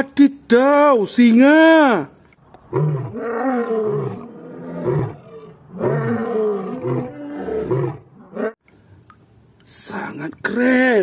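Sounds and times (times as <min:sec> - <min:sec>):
lion roaring and grunting: 0:02.6 - 0:08.6.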